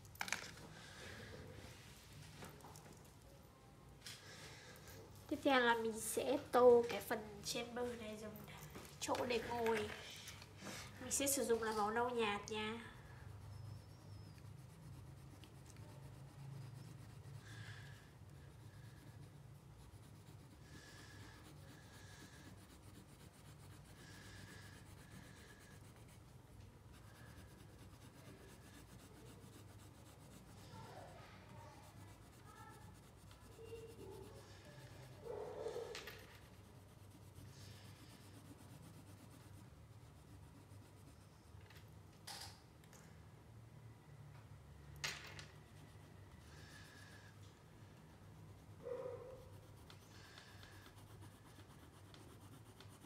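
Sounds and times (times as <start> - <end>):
crayon scratching on paper: 11.0 - 41.5, 48.2 - 53.0.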